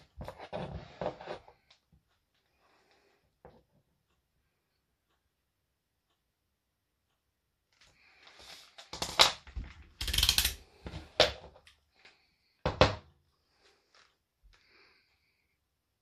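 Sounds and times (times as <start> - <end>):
objects knocking on wooden floor: 12.6 - 13.1.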